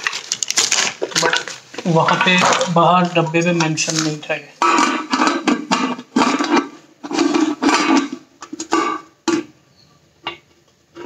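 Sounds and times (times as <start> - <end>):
metal lid scraping and clanking: 4.6 - 9.5.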